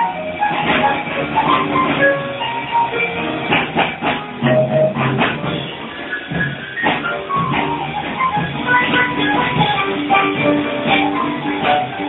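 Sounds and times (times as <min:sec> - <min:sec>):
jazz band playing: 0:00.0 - 0:12.0
piano played fast: 0:00.0 - 0:12.0.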